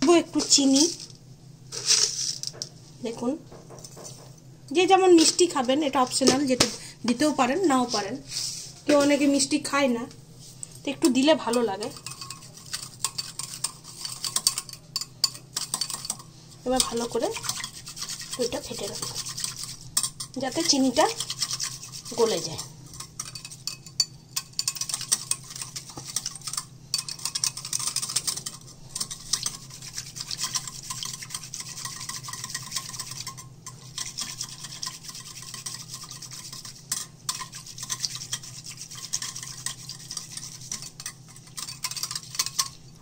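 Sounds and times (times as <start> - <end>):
whisk scraping glass bowl: 10.9 - 43.0.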